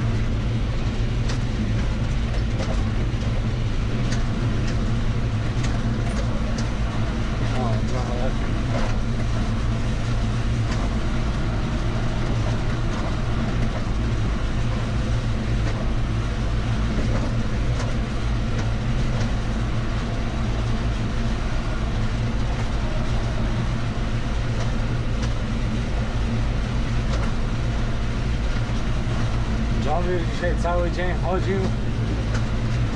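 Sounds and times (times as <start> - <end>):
tractor engine droning: 0.0 - 32.9
faint clicks and rattles: 0.8 - 4.9, 28.4 - 32.9.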